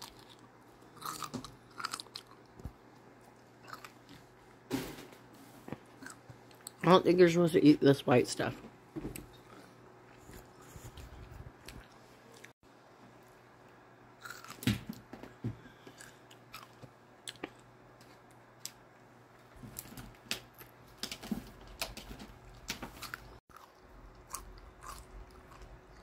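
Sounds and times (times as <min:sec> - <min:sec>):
wet chewing crunches: 0:00.0 - 0:02.7, 0:14.2 - 0:14.6, 0:22.4 - 0:26.0.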